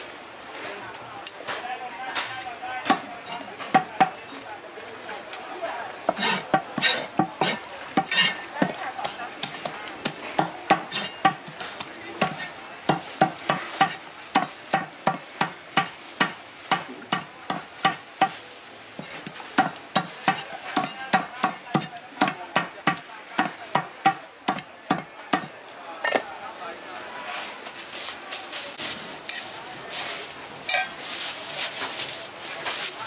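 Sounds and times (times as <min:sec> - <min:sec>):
meat cleaver chopping on wooden block: 0:06.1 - 0:08.4.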